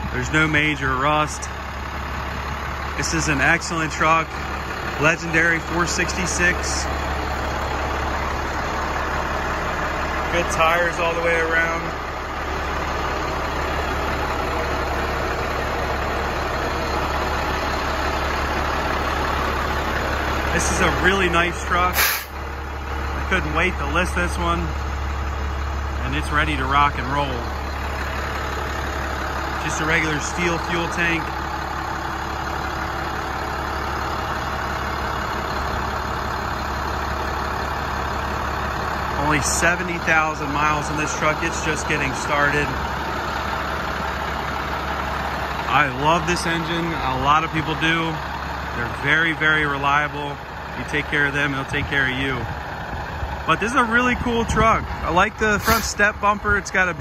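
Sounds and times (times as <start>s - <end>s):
diesel engine idling: 0.0s - 57.0s.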